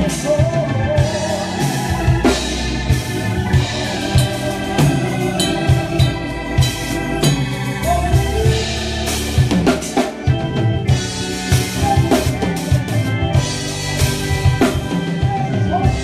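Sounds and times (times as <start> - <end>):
drum kit groove: 0.0 - 16.0
sustained keyboard chords: 0.0 - 16.0.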